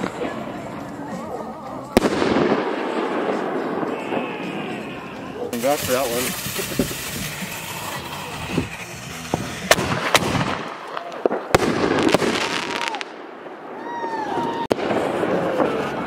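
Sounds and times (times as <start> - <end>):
fireworks hissing and crackling: 0.0 - 16.0
firework shells bursting: 5.5 - 13.2.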